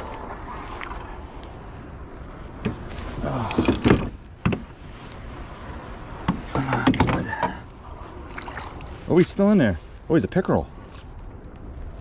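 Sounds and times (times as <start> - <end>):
knocks against a canoe: 3.5 - 4.7, 6.2 - 7.6.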